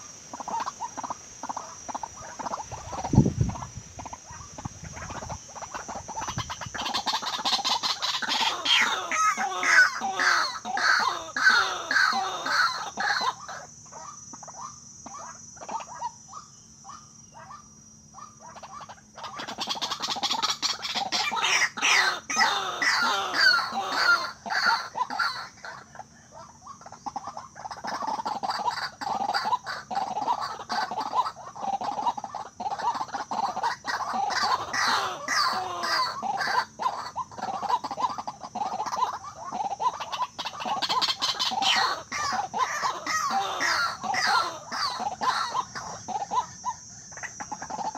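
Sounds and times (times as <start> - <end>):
waterhens calling harshly: 0.0 - 47.9.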